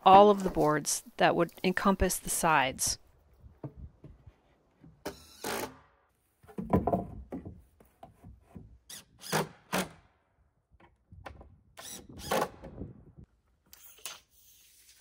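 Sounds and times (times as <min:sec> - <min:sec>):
wood knocking on wood: 0:06.5 - 0:08.7.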